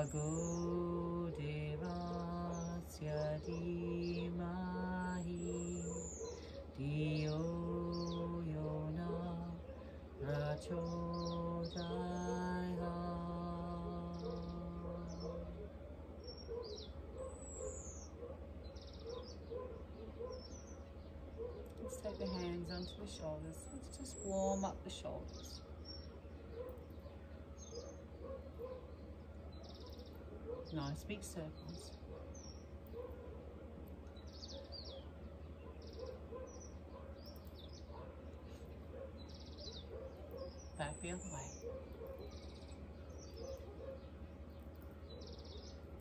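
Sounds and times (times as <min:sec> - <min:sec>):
woman chanting: 0:00.0 - 0:15.8, 0:21.7 - 0:25.6, 0:30.6 - 0:32.1, 0:40.6 - 0:41.7
low background hum: 0:00.0 - 0:46.0
small birds chirping: 0:00.0 - 0:46.0.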